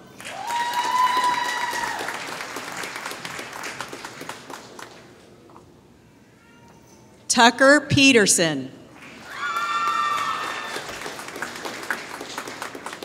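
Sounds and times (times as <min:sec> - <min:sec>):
high-pitched cheer: 0:00.2 - 0:02.2, 0:09.2 - 0:11.1
audience applauding: 0:00.2 - 0:05.1, 0:09.0 - 0:13.0.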